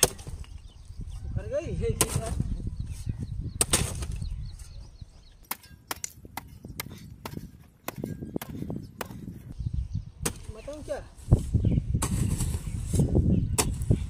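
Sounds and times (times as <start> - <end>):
digging tool striking hard soil: 1.9 - 2.5, 3.6 - 4.2, 10.2 - 10.7, 11.9 - 14.0.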